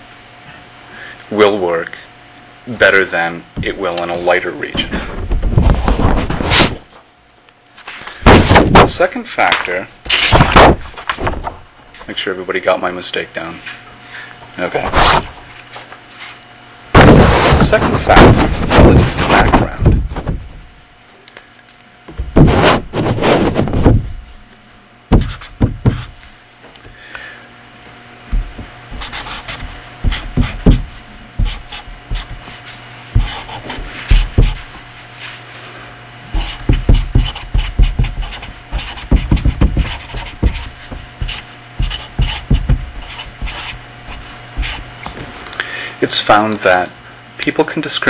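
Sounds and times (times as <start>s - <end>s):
faint steady hum: 0.0s - 48.0s
handwriting scratching: 25.1s - 26.1s, 28.9s - 32.6s, 33.2s - 34.7s, 36.3s - 44.8s.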